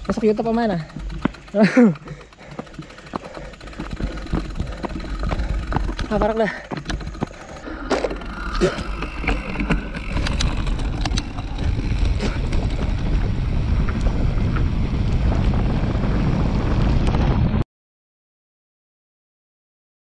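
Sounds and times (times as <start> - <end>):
bike clicks and rattles: 0.0 - 17.5
wind buffeting microphone: 2.4 - 17.6.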